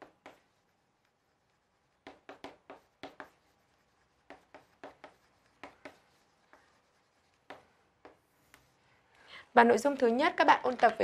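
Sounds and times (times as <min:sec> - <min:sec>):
chalk writing on a chalkboard: 0:00.0 - 0:08.9.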